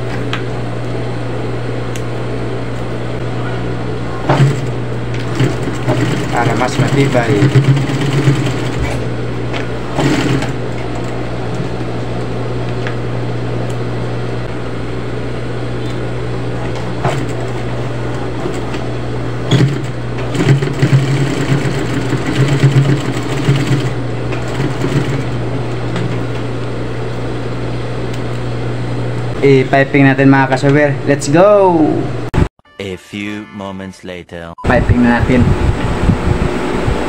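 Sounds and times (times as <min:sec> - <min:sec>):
sewing machine stitching: 0:04.3 - 0:09.0, 0:10.0 - 0:10.6, 0:19.5 - 0:25.3.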